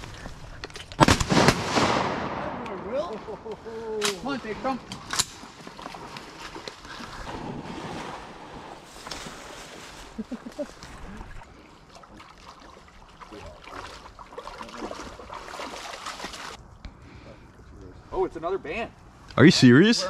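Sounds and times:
sharp crack: 0.8 - 3.3, 3.9 - 5.5
faint water sloshing: 3.1 - 18.1.

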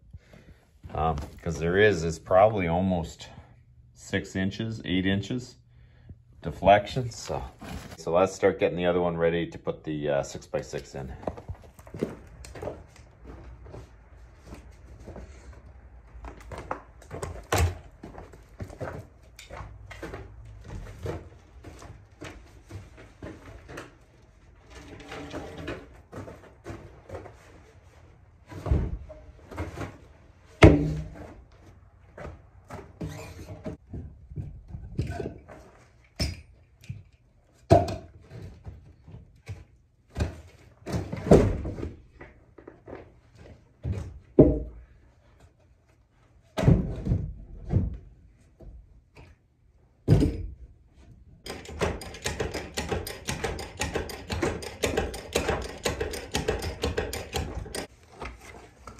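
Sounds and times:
heavy timber thudding: 30.6 - 31.3.

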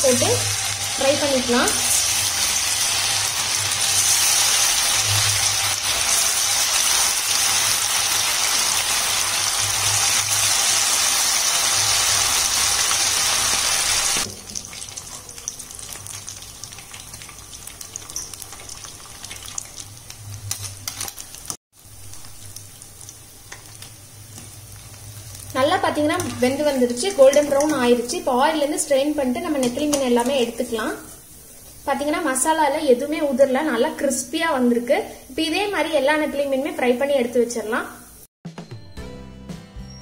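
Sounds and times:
fish deep-frying in oil: 0.0 - 34.8
small crackles: 14.9 - 25.5.

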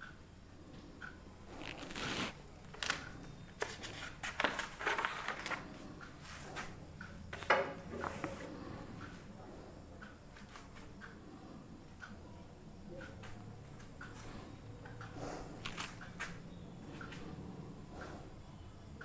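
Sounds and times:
objects rustling and knocking: 1.8 - 8.6.

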